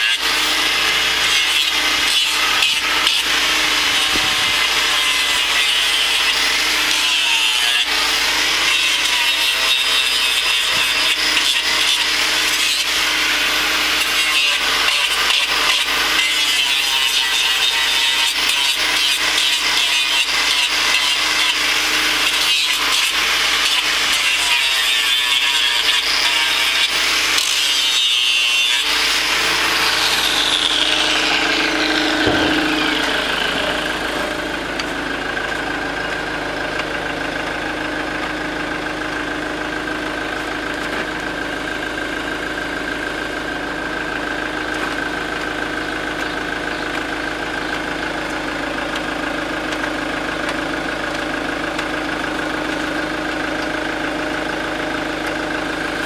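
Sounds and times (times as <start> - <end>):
angle grinder grinding hoof: 0.0 - 56.0
grinder motor spinning down: 0.0 - 56.0.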